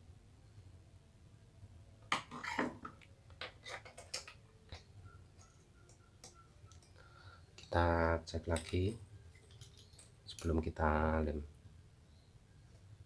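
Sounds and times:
small parts clicking on workbench: 0:08.5 - 0:10.6.

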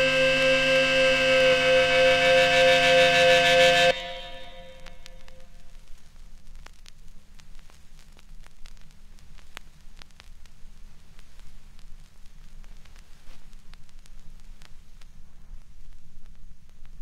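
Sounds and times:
vinyl record hiss and rumble: 0:00.0 - 0:02.5, 0:03.9 - 0:17.0
vinyl pops and clicks: 0:05.1 - 0:17.0.

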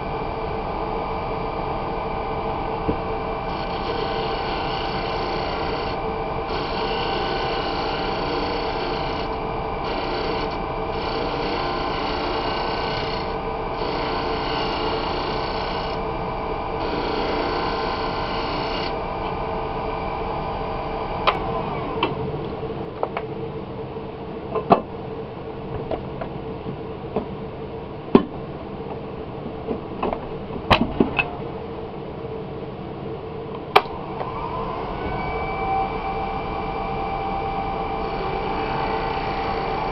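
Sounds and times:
lathe machine hum: 0:00.0 - 0:22.8, 0:34.0 - 0:39.9.

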